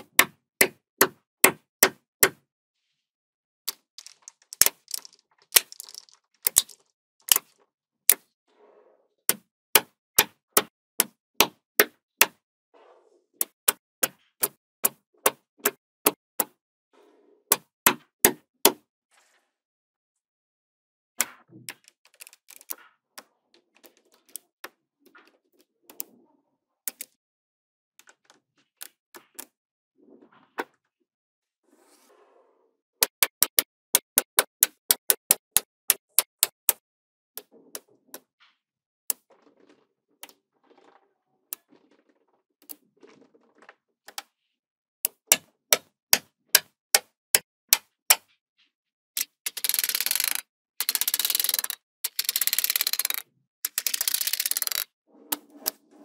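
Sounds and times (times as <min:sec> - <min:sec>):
magnet balls clicking: 0:03.7 - 0:07.5, 0:21.7 - 0:22.8, 0:49.2 - 0:54.9.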